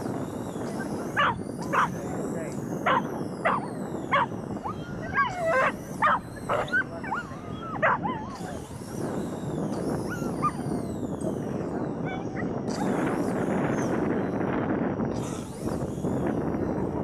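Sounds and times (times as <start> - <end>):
dog barking: 1.2 - 1.9, 5.2 - 8.6
dog yelping and whining: 1.2 - 1.9, 2.9 - 8.7, 10.1 - 10.9, 12.1 - 12.5.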